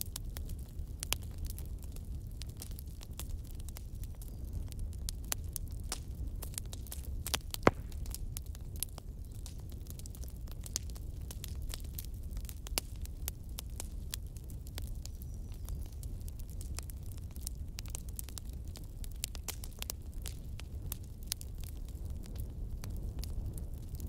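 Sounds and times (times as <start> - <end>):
crackling clicks: 7.5 - 8.2.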